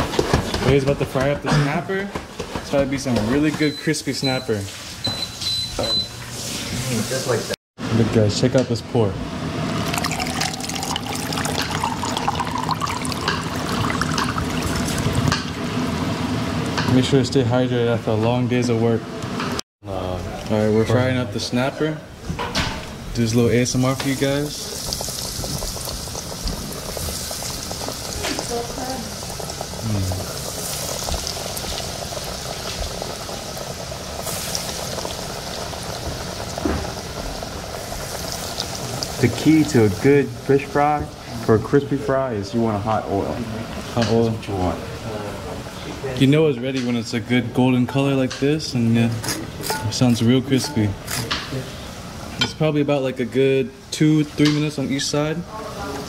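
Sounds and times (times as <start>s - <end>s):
oil bubbling and crackling: 9.6s - 17.1s, 22.8s - 45.8s
liquid pouring onto ice: 9.8s - 15.2s.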